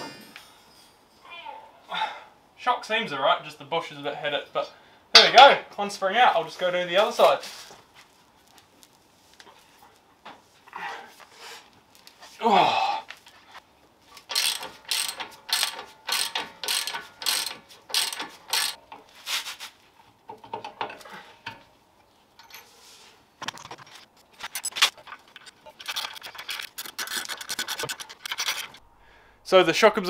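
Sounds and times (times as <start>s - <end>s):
ratchet wrench clicking: 14.3s - 18.8s.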